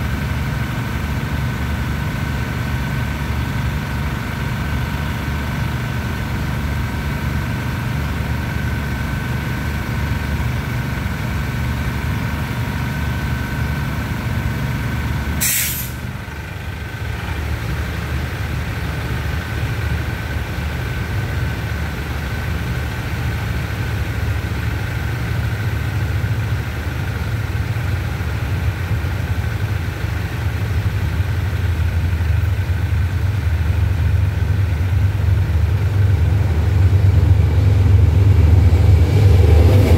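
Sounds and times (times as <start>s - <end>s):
approaching diesel train rumble: 0.0s - 39.9s
diesel railcar engine idling: 0.0s - 39.9s
brake air hiss: 15.4s - 16.1s.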